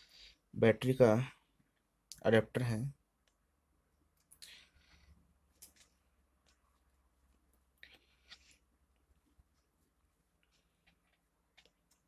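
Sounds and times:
faint clicks and rustles of wires: 3.1 - 12.0.

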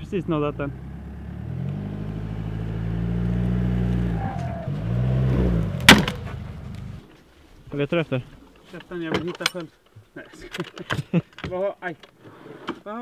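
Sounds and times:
car engine running low: 0.0 - 7.0
wooden pallet cracking: 5.6 - 7.0.

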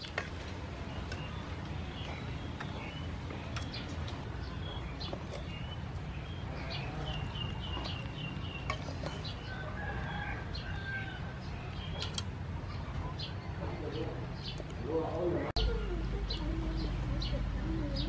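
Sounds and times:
birds calling: 0.0 - 18.0
rooster crowing: 9.4 - 11.5.

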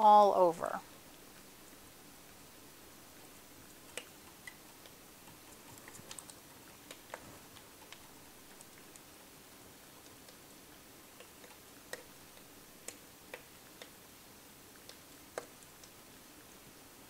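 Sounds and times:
faint ticks and pops of fizzing: 3.2 - 14.1, 14.7 - 16.2.

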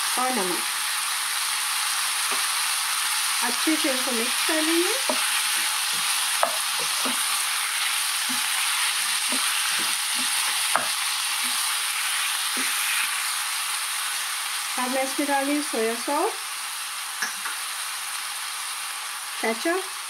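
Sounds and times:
chicken sizzling in oil: 0.0 - 20.0
wooden spoon stirring: 5.0 - 13.1.

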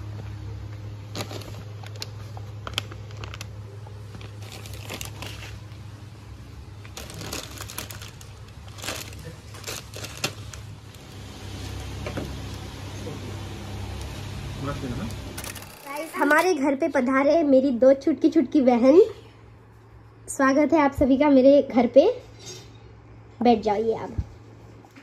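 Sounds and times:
steady low hum: 0.0 - 25.0
plastic packets crinkling: 1.0 - 5.9, 6.8 - 11.2, 15.4 - 16.5.

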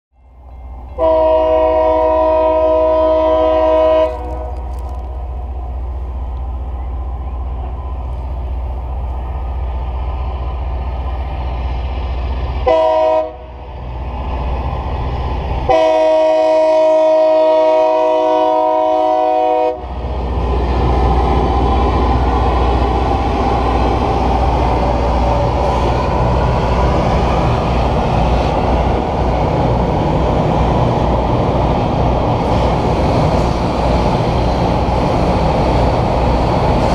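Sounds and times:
rail grinding noise: 0.2 - 36.9
train horn blasts: 0.9 - 4.8, 12.6 - 13.6, 15.7 - 19.9
engines low rumble: 4.1 - 12.7, 19.7 - 36.9.

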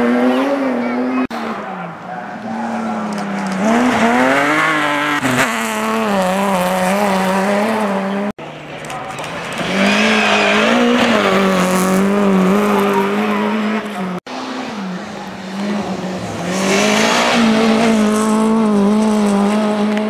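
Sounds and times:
rally car engines at high revs: 0.0 - 20.0.

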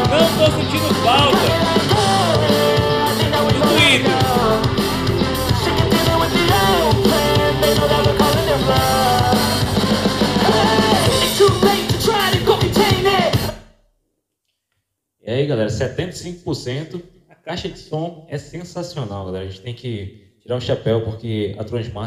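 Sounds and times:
rock-pop song from speaker: 0.0 - 13.6.

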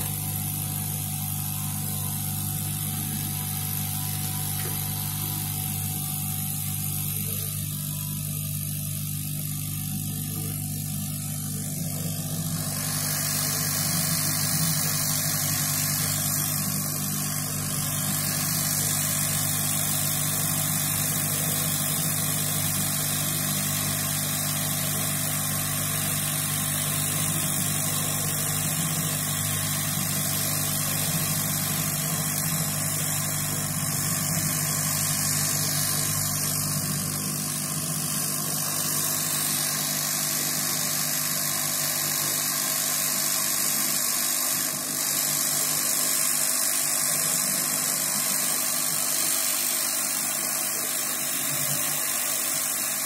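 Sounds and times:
steady low hum: 0.0 - 42.0
hot-air gun rushing hiss: 0.0 - 53.0.

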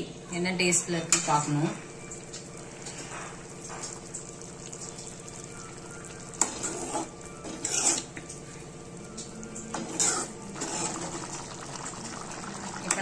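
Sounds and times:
curry simmering with quiet sizzle: 0.0 - 13.0
ladle clinking and scraping pot: 6.4 - 8.2, 9.7 - 11.3.

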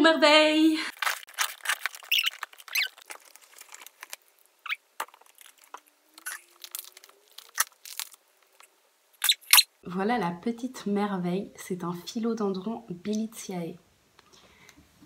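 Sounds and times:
paper crinkling and tearing: 0.9 - 9.6.

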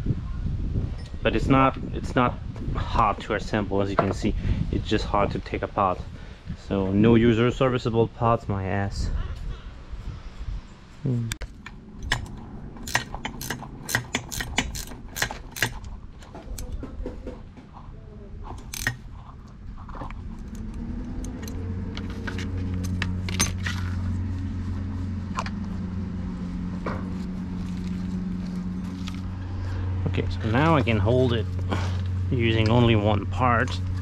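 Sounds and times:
wrench clicking on metal: 11.6 - 15.9, 18.6 - 19.0
low machine hum: 17.8 - 34.0.

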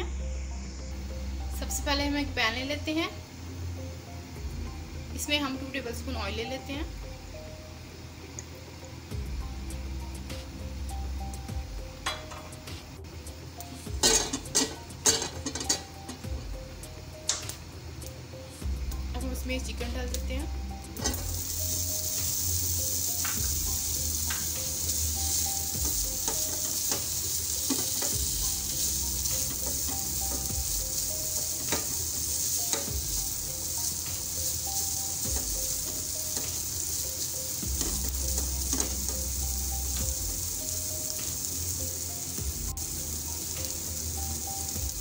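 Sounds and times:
chicken sizzling in oil: 13.2 - 17.9, 19.2 - 45.0.

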